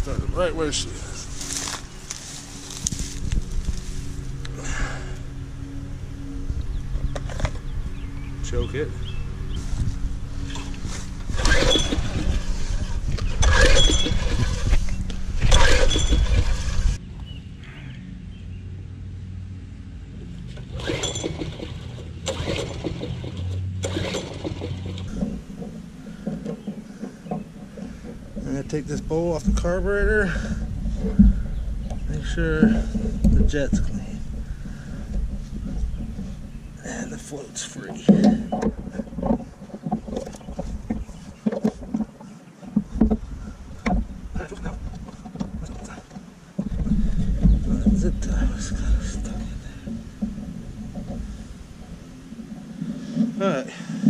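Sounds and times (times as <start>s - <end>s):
small engine sputtering: 0.5s - 17.0s, 20.5s - 42.2s
recoil starter cord pulls: 10.4s - 17.0s, 20.5s - 54.0s.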